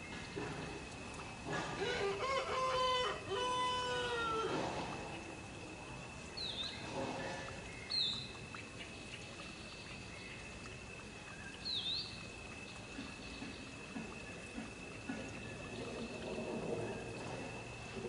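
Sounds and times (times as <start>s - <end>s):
rooster crowing: 1.8s - 4.6s.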